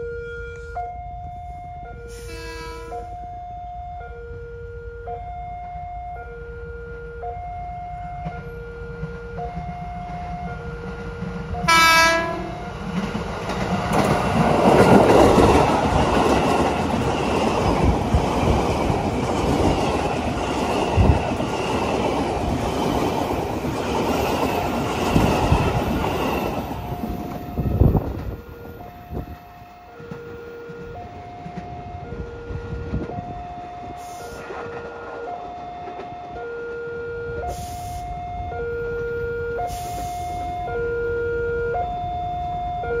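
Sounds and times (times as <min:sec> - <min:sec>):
level crossing warning siren: 0:00.0 - 0:43.0
train horn blast: 0:02.1 - 0:03.1, 0:11.6 - 0:12.7
train wheels clattering: 0:08.2 - 0:28.4.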